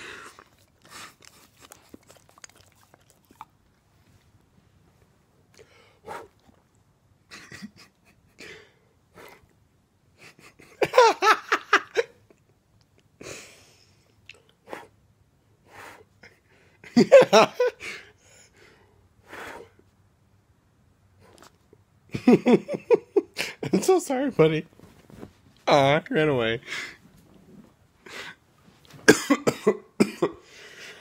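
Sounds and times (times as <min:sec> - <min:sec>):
dog snuffling and licking: 0:00.2 - 0:04.0
person laughing: 0:07.3 - 0:08.7, 0:10.2 - 0:12.2, 0:16.9 - 0:17.8.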